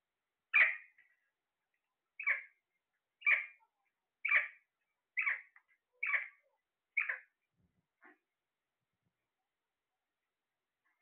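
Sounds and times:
parakeet squawks: 0.5 - 0.9, 2.2 - 2.5, 3.2 - 3.6, 4.2 - 4.6, 5.2 - 6.4, 7.0 - 7.3.

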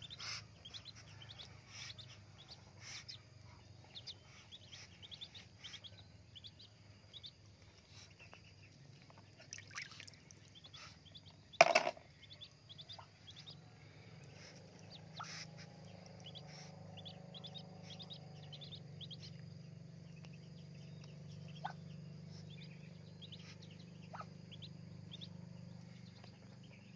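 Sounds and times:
ducklings peeping: 0.0 - 26.9
low steady hum: 0.0 - 26.9.

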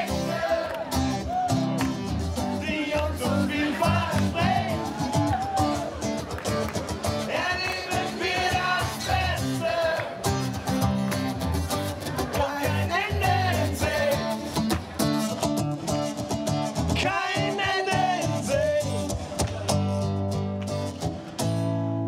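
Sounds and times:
bass line: 0.0 - 22.0
strummed guitar: 0.0 - 22.0
man singing: 2.4 - 5.0, 7.2 - 10.3, 12.2 - 14.6, 16.9 - 19.4.

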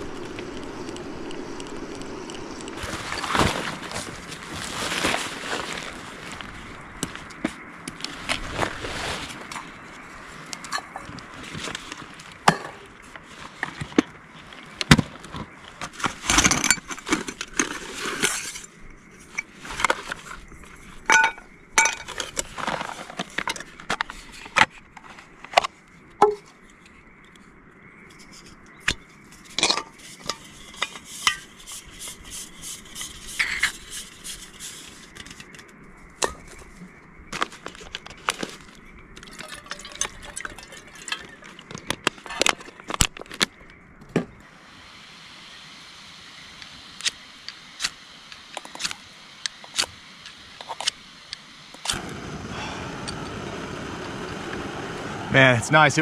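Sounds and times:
soft rustling: 2.7 - 12.4.

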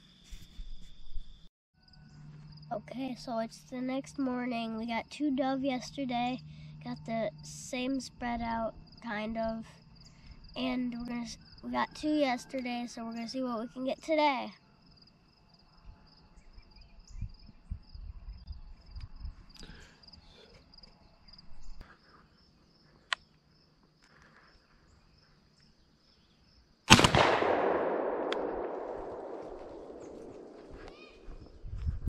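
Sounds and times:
insects chirping: 0.0 - 26.9, 28.1 - 31.8
wind rumble: 16.8 - 19.5, 27.0 - 32.0
shotgun blast with echo: 26.9 - 31.0.

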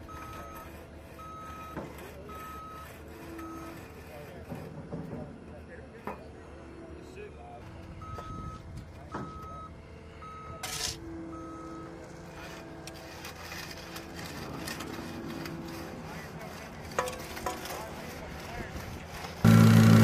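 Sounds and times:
reversing alarm beeping: 0.0 - 4.0, 7.8 - 12.6
low machinery hum: 0.0 - 20.0
faint voices: 14.2 - 19.4.

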